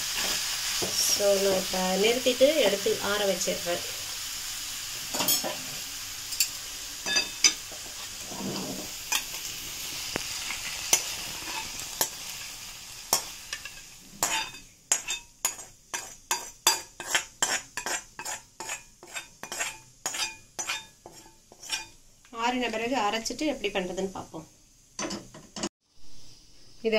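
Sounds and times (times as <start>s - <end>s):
food sizzling in oil: 0.0s - 26.9s
steel ladle scraping pan: 5.1s - 5.7s, 6.3s - 9.4s, 10.4s - 22.0s.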